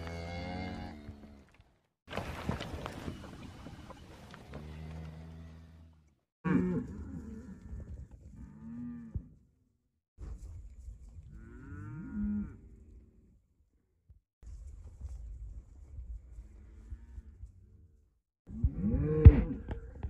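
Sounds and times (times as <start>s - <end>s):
cattle mooing: 0.0s - 1.4s.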